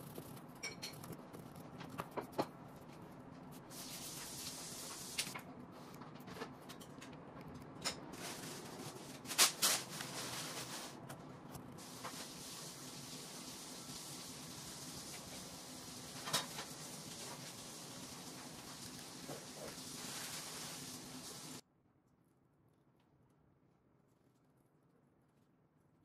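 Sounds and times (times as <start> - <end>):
soft hissing: 3.6 - 5.4, 11.8 - 21.6.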